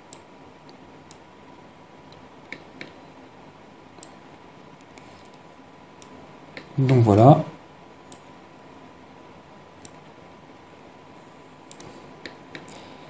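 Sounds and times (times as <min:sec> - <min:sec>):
microphone hiss: 0:00.0 - 0:13.0
computer mouse clicks: 0:02.5 - 0:03.0, 0:08.1 - 0:08.3, 0:11.7 - 0:12.8.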